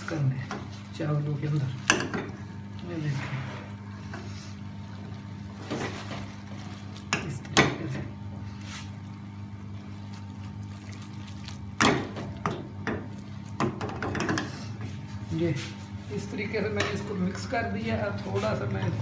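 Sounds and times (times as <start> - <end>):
steady low hum: 0.0 - 19.0
rice swishing in metal pan: 8.4 - 11.8.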